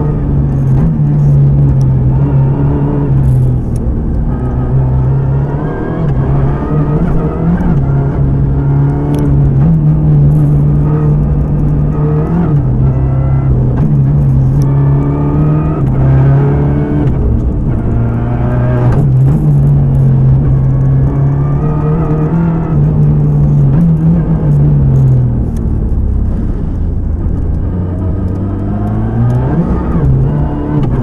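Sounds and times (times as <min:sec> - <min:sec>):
rally car engine revving: 0:00.0 - 0:31.0
road noise: 0:00.0 - 0:31.0.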